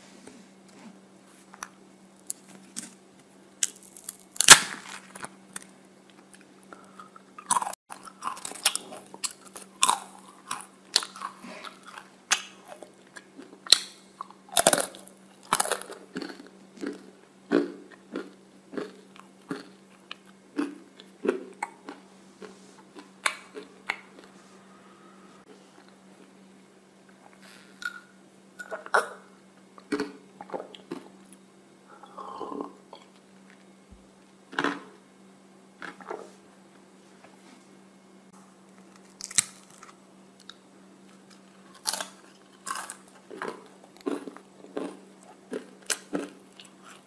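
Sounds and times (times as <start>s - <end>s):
waffle cone cracking: 3.6s - 5.7s, 38.8s - 40.0s
crunching and chewing: 3.6s - 26.4s, 27.0s - 33.7s, 34.5s - 35.0s, 35.8s - 36.4s, 38.6s - 47.0s.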